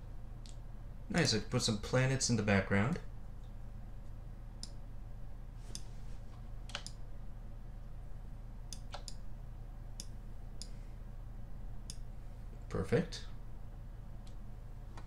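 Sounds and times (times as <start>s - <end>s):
low steady hum: 0.0s - 15.0s
computer mouse clicking: 6.6s - 7.0s, 8.7s - 9.2s.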